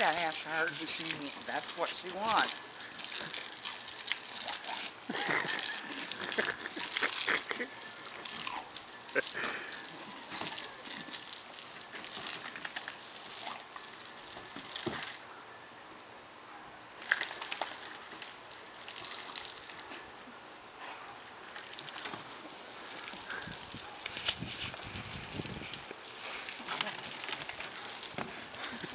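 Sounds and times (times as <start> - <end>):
dog splashing in water: 0.0 - 15.2, 17.0 - 20.1, 20.9 - 24.9
hose spray on wooden deck: 0.0 - 15.2, 17.0 - 28.9.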